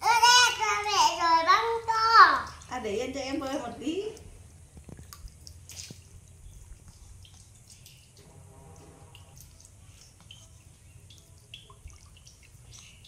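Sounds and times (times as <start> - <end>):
water splashing in plastic basin: 0.0 - 13.0.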